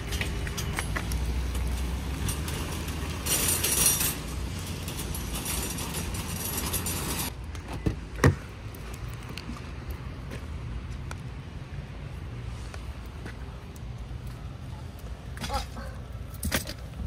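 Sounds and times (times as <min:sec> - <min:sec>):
shopping cart rolling on wet asphalt: 0:00.0 - 0:07.3.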